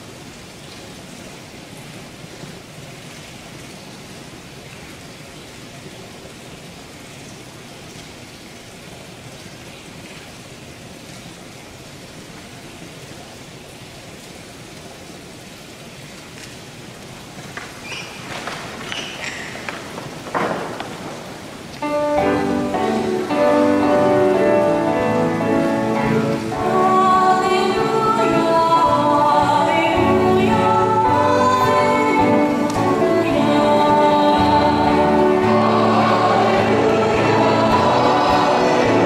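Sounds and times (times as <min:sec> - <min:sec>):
room noise hiss: 0:00.0 - 0:39.0
music: 0:21.8 - 0:39.0.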